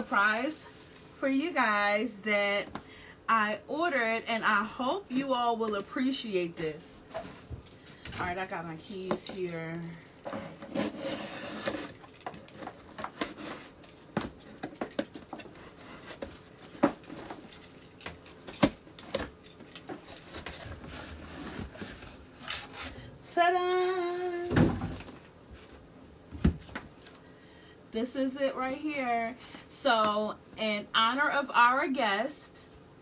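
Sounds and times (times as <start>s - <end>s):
keys jangling: 7.1s - 10.3s.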